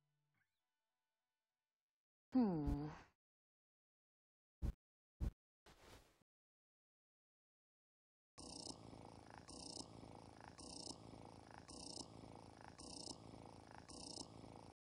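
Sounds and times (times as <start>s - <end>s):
rhythmic purring: 8.4s - 14.8s.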